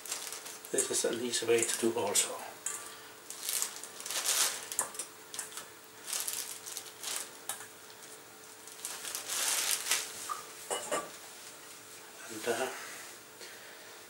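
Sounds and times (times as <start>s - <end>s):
plastic bag crinkling: 0.0s - 2.4s, 3.2s - 10.4s.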